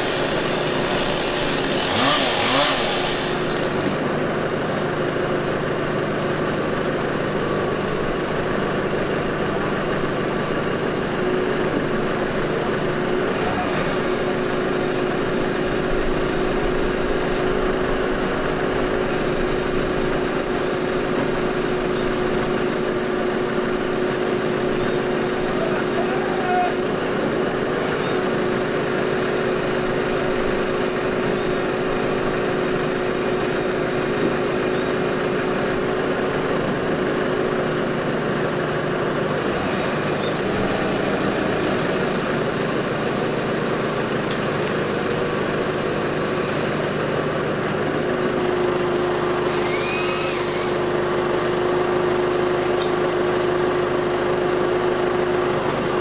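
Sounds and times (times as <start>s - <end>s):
chainsaw cutting wood: 0.0s - 4.8s, 49.1s - 50.8s.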